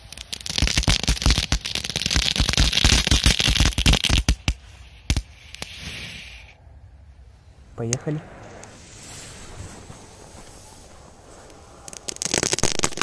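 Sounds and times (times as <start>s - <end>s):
firecracker crackling: 0.0s - 6.6s, 8.2s - 13.0s
firecracker pops: 0.1s - 6.0s, 11.4s - 13.0s.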